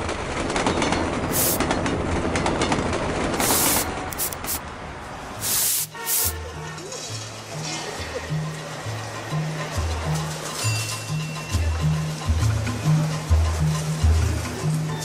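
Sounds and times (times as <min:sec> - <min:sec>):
short bursts of hiss: 0:01.3 - 0:01.6, 0:03.4 - 0:04.6, 0:05.4 - 0:06.4
low background music: 0:05.9 - 0:15.0.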